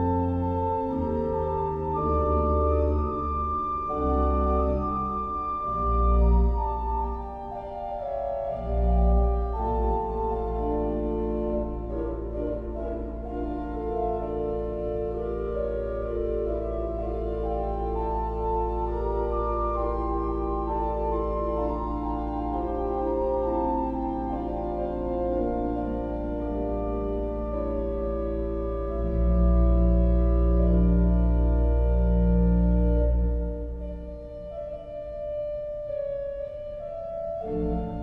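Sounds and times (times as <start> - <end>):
deep organ pedal note: 0.0 - 38.0
pipe organ playing: 0.0 - 38.0.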